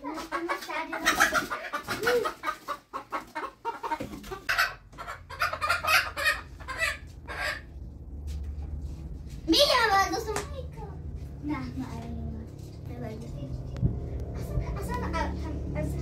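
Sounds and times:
chickens clucking: 0.0s - 9.2s, 12.7s - 16.0s.

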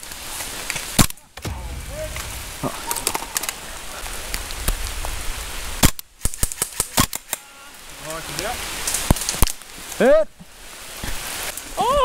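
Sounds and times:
rain hissing: 0.0s - 6.7s, 7.6s - 12.0s
airsoft gun shots: 1.4s - 3.7s.

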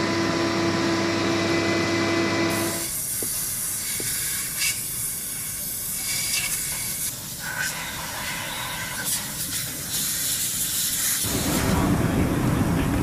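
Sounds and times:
steady hissing noise: 2.8s - 13.0s
low rumble of machinery: 11.3s - 13.0s.

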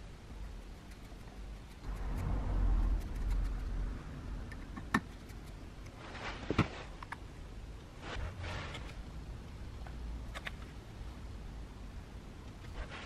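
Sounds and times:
low handling rumble: 1.8s - 5.8s.

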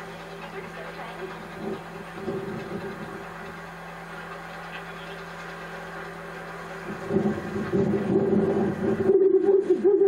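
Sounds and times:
faint steady hum: 0.0s - 10.0s
wind buffeting microphone: 1.3s - 3.8s, 6.6s - 10.0s.

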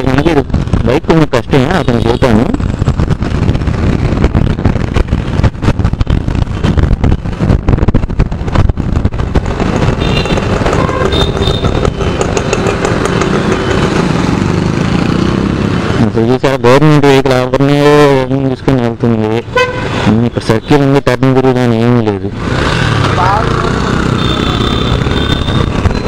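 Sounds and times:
wind rush on microphone: 0.0s - 13.1s, 24.8s - 26.0s
motorcycle engine running: 2.5s - 16.1s, 22.4s - 26.0s.

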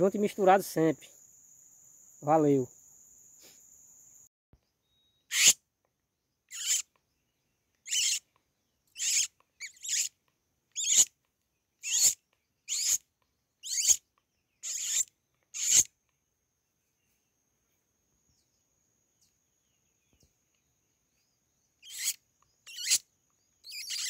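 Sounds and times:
high insect buzz: 0.2s - 4.3s, 5.3s - 5.6s, 6.4s - 7.0s, 7.8s - 11.2s, 11.8s - 16.0s, 19.2s - 24.0s
short squeaky animal calls: 4.9s - 5.6s, 6.5s - 7.0s, 7.8s - 8.3s, 9.0s - 11.1s, 11.8s - 13.0s, 13.6s - 14.0s, 14.6s - 15.9s, 21.8s - 24.0s.

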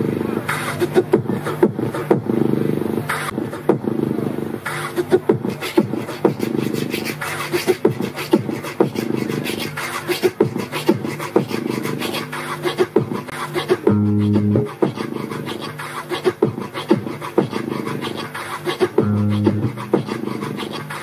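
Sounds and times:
beatboxing mouth percussion clicks: 0.4s - 2.5s, 3.1s - 21.0s.

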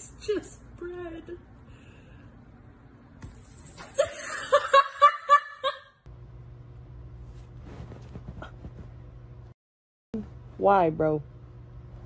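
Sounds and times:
steady low hum: 6.0s - 9.6s, 10.2s - 12.0s.

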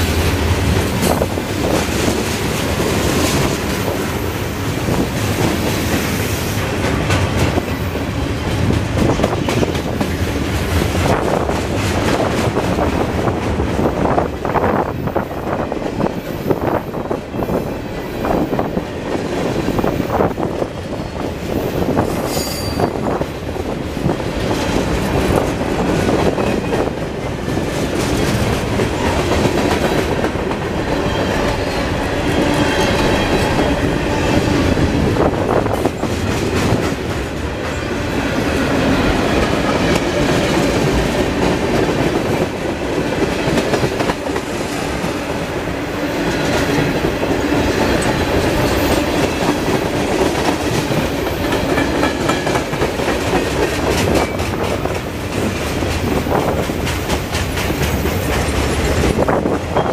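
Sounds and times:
train wheels rumbling on rails: 0.0s - 59.9s
high wheel squeal: 21.9s - 23.1s.

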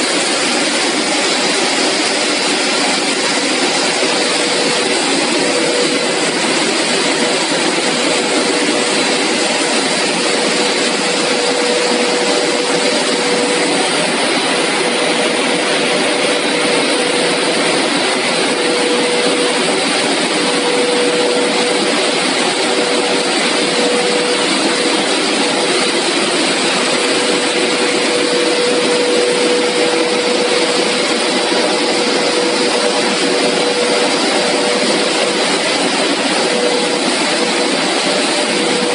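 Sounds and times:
industrial motors and blowers: 0.0s - 38.9s
steady hum: 0.0s - 38.9s.

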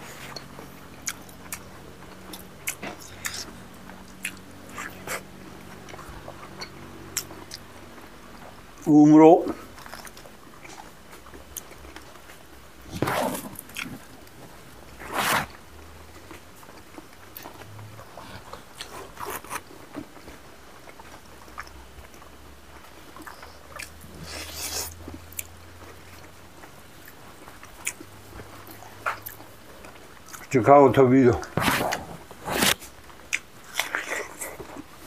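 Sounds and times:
chewing and crunching: 0.0s - 8.6s, 9.5s - 30.6s, 31.3s - 35.0s.

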